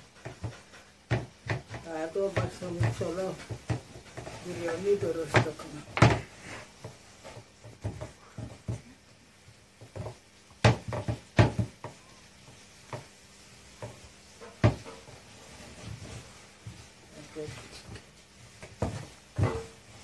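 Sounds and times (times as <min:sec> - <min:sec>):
rolling pin knocking board: 0:00.0 - 0:09.0, 0:09.8 - 0:15.1
rolling pin rolling dough: 0:00.0 - 0:20.0.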